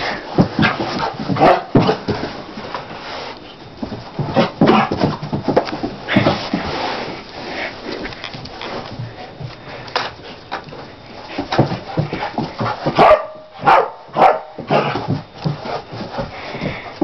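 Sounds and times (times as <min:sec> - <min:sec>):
dog paws scuffling on carpet: 0:00.0 - 0:17.0
dog barking: 0:01.4 - 0:01.7, 0:12.9 - 0:14.9.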